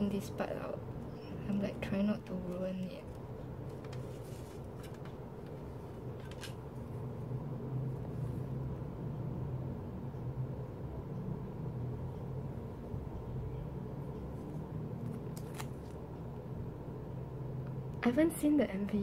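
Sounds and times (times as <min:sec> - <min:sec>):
low hum: 0:00.0 - 0:18.0
paper booklet clicks and rustles: 0:15.0 - 0:16.0.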